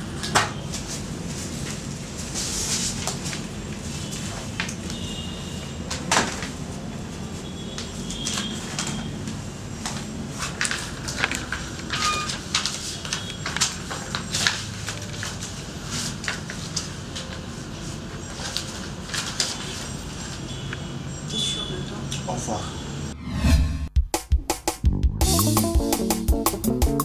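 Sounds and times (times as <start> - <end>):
papers rustling: 0.3 - 5.0, 5.9 - 20.5.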